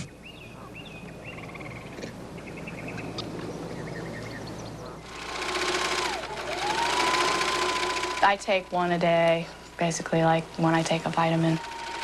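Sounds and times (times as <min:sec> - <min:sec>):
sewing machine whining: 0:05.1 - 0:12.0.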